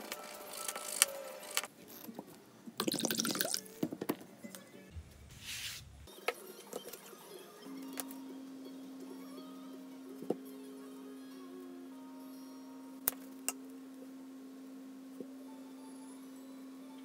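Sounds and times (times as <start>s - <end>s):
liquid pouring into metal mug: 2.8s - 3.7s
background music: 2.8s - 14.5s, 15.1s - 17.0s.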